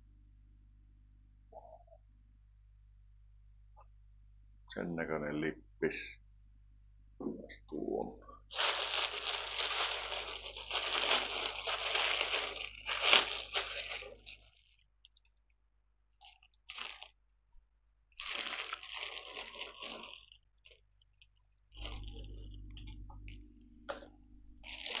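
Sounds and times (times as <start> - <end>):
plastic bag crinkling: 8.5 - 15.4, 16.1 - 17.2, 18.1 - 25.0.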